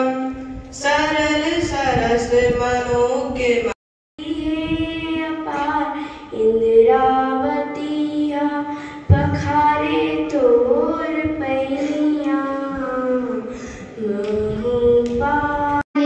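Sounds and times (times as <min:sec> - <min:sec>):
children singing unaccompanied: 0:04.2 - 0:16.0.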